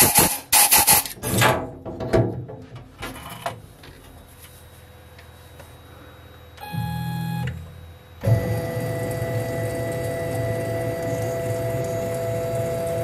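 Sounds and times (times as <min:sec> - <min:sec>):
pitched machine whine: 0:00.0 - 0:01.2, 0:05.2 - 0:13.0
faint steady hum: 0:00.0 - 0:13.0.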